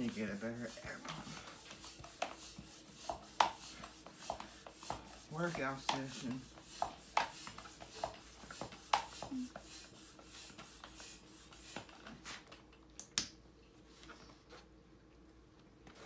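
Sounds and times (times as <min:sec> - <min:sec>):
hand floor pump strokes: 0:00.0 - 0:12.7.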